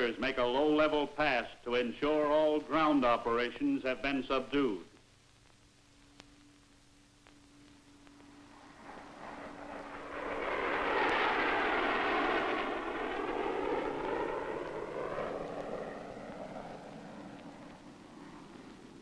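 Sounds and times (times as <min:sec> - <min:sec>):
jet fighters roaring overhead: 0:00.0 - 0:03.9, 0:08.2 - 0:19.0.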